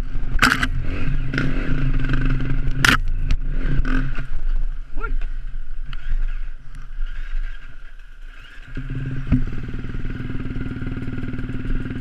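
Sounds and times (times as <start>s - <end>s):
dirt bike engine idling: 0.0s - 12.0s
sharp click: 0.4s - 0.8s.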